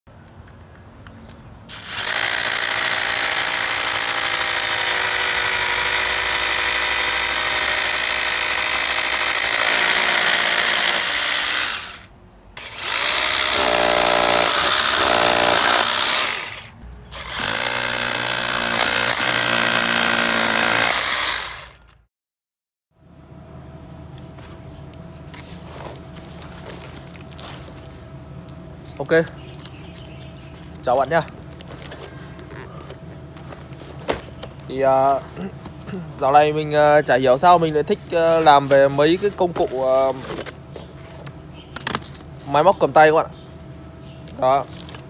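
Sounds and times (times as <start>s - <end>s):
rotary hammer drilling into concrete: 1.7s - 21.9s.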